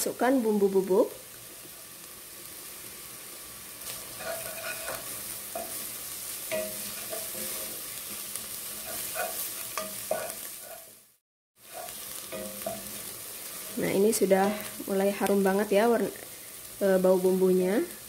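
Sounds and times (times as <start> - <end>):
shallots sizzling in oil: 0.0 - 18.0
wooden spatula scraping a pot: 3.8 - 11.0.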